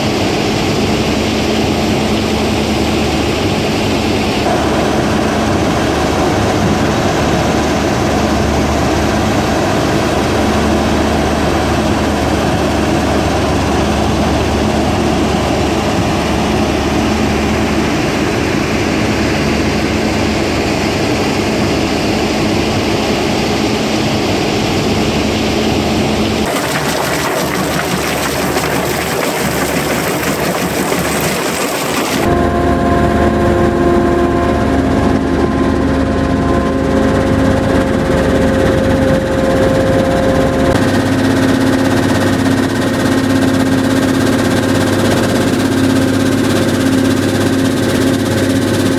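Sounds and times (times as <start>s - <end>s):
stone crushing machinery: 26.5s - 32.3s.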